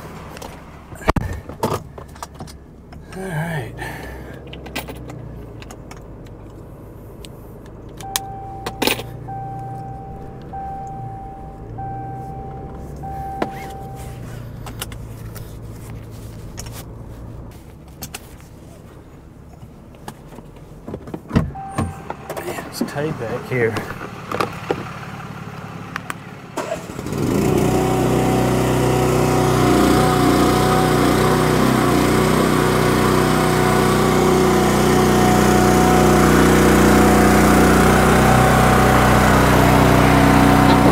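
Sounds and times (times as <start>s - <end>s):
truck engine idling: 0.0s - 20.8s
electronic beeps: 8.0s - 14.2s, 21.6s - 22.4s.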